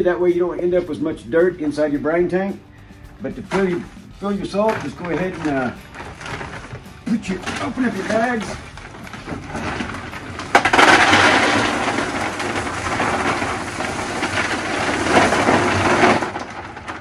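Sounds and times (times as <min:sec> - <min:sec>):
plastic bag rustling: 0:02.8 - 0:17.0
salt pellets pouring into plastic tank: 0:03.4 - 0:17.0.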